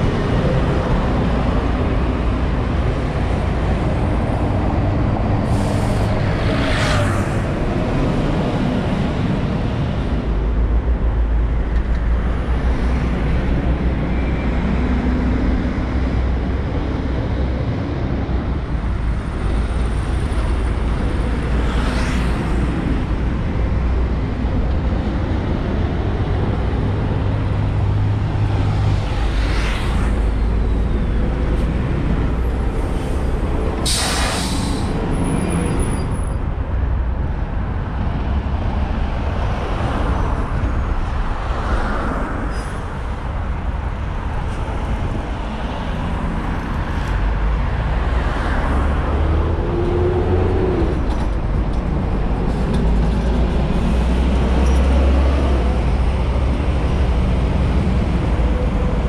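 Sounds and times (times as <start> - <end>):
bus engine rumble: 0.0 - 59.0
air brakes hissing: 5.4 - 6.1, 33.8 - 35.0.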